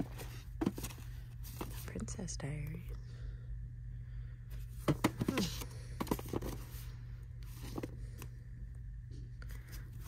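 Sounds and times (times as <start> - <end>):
books tapping and scraping on shelf: 0.0 - 1.9, 4.8 - 6.8
steady low hum: 0.0 - 10.0.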